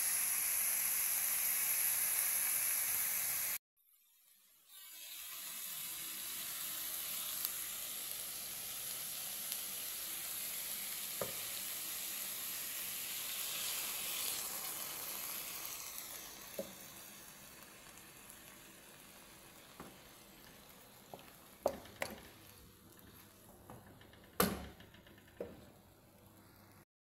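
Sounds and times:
food sizzling in a wok: 0.0 - 24.8
spatula knocking against wok: 21.1 - 22.4, 23.6 - 25.7.

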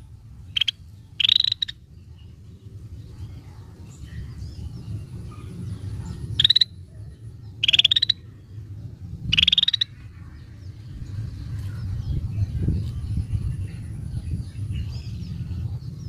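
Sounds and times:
steady low rumble: 0.0 - 16.0
bird giving rattling calls: 0.5 - 1.8, 6.1 - 6.8, 7.6 - 8.3, 9.3 - 10.0.

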